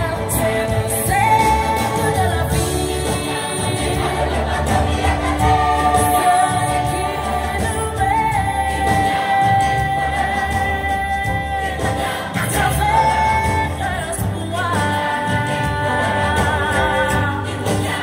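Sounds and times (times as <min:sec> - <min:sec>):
backing music: 0:00.0 - 0:18.0.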